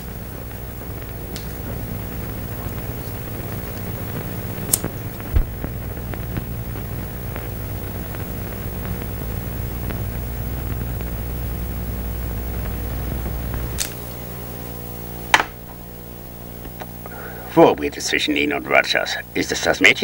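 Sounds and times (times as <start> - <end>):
low hum with hiss: 0.0 - 20.0
faint ticks: 0.3 - 14.0
short low thump: 5.3 - 6.0
sharp click: 13.8 - 14.0.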